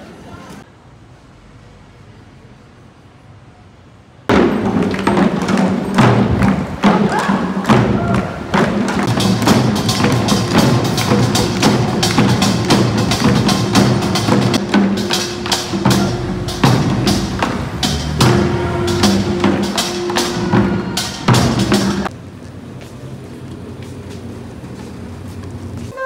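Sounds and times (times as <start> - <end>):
music with percussive beat: 4.3 - 22.1
low bass line: 13.2 - 22.1.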